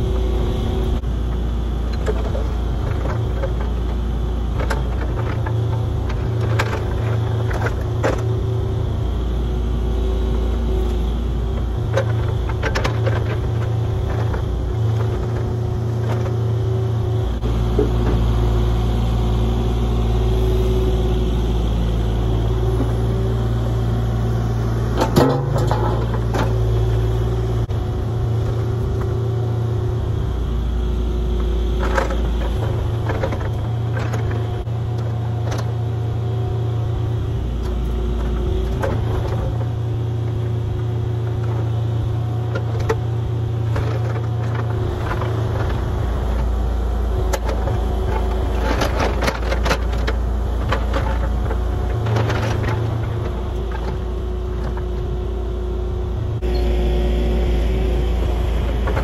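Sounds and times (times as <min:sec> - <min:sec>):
excavator engine running: 0:00.0 - 0:59.0.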